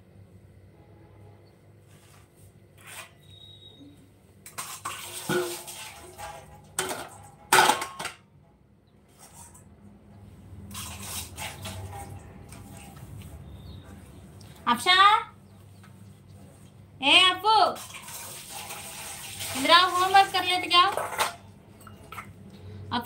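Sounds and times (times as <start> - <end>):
dishes and cutlery clattering: 4.5 - 8.2, 20.8 - 22.3.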